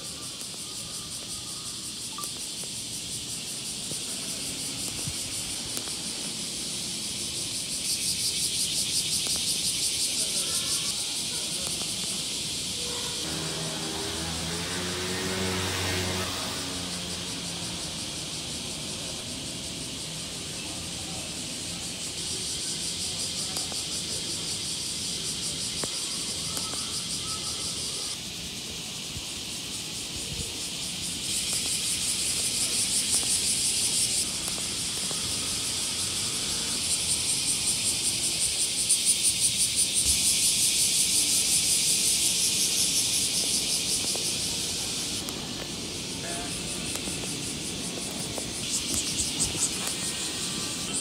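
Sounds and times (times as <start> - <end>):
cicadas buzzing: 0.0 - 51.0.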